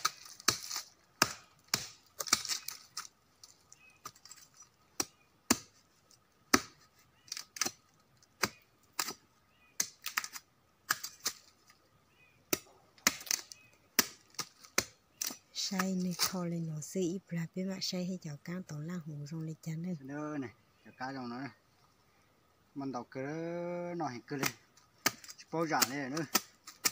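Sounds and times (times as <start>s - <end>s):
machete chopping wood: 0.0s - 3.1s, 5.0s - 5.8s, 6.5s - 7.8s, 8.4s - 9.2s, 9.8s - 11.5s, 12.5s - 16.4s, 24.3s - 26.9s.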